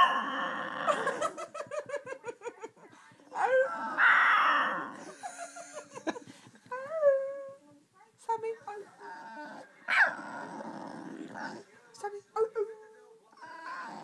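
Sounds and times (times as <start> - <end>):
dog whining: 13.4 - 14.0.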